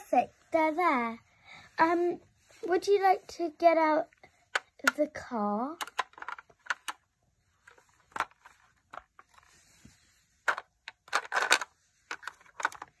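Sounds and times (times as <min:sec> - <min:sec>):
plastic toys clicking: 0:05.7 - 0:07.1, 0:10.5 - 0:13.0.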